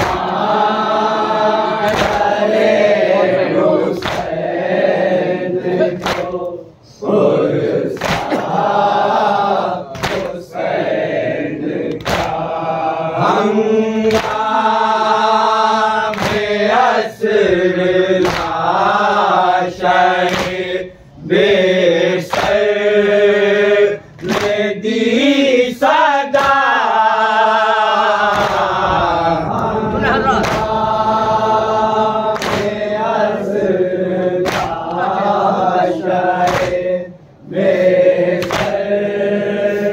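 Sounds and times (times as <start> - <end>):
men chanting a lament: 0.0 - 39.9
hands slapping chests: 1.8 - 2.4, 4.0 - 4.4, 6.0 - 6.6, 8.0 - 8.5, 9.9 - 10.4, 11.9 - 12.5, 14.1 - 14.5, 16.1 - 16.5, 18.2 - 18.6, 20.2 - 20.7, 22.3 - 22.6, 24.2 - 24.6, 26.3 - 26.7, 28.2 - 28.8, 30.3 - 30.8, 32.3 - 32.8, 34.4 - 35.0, 36.4 - 36.8, 38.4 - 38.8.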